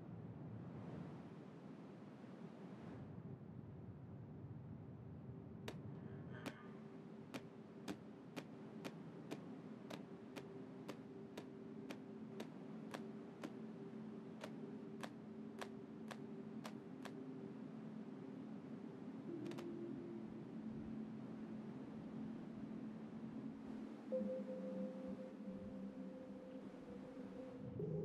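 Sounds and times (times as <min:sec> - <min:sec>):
low steady hum: 0:00.0 - 0:28.0
sharp ticks: 0:07.4 - 0:13.6.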